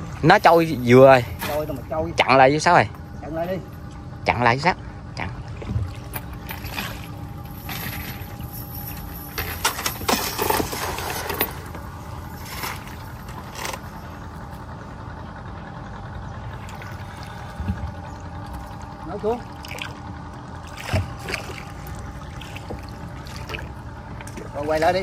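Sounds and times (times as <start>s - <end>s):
small boat engine humming: 0.0s - 25.0s
water splashing against boat: 5.0s - 14.1s, 16.5s - 25.0s.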